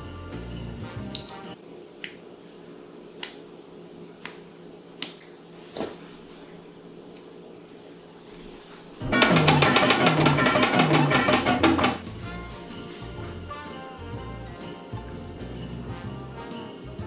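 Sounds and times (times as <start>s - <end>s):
background music: 0.0s - 1.6s, 9.0s - 17.0s
sharp snaps: 3.2s - 3.5s, 5.0s - 5.4s.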